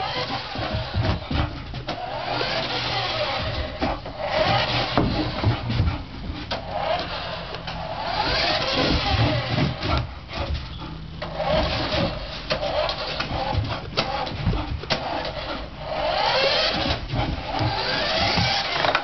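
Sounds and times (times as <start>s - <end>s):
toy car electric motor whining: 0.0s - 1.2s, 2.0s - 5.4s, 6.6s - 10.0s, 11.2s - 14.2s, 14.9s - 19.0s.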